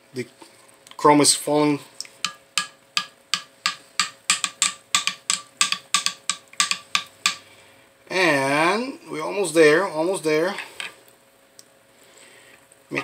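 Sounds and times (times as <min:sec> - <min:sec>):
metal tapping glass cup: 0:02.2 - 0:07.4.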